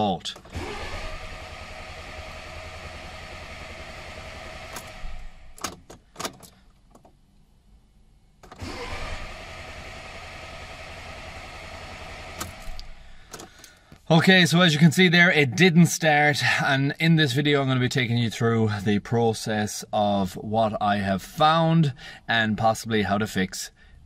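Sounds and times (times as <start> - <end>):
car engine cranking: 0.3 - 7.2, 8.4 - 13.8.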